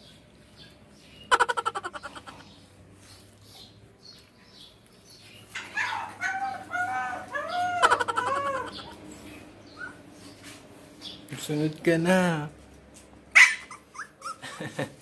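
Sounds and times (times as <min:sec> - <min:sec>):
dog yelping: 0:05.5 - 0:09.1, 0:09.7 - 0:10.1, 0:13.3 - 0:14.6
dog whining howls: 0:05.8 - 0:09.0.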